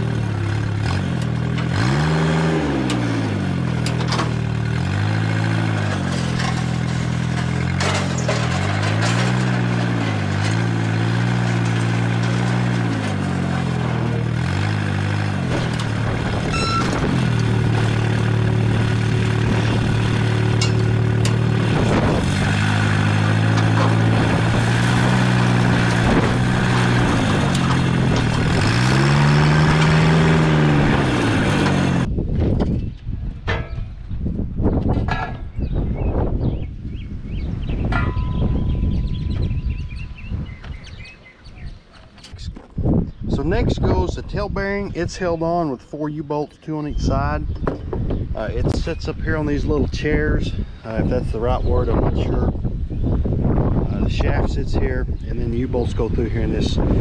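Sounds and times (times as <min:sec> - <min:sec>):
forklift engine revving: 0:00.0 - 0:32.1.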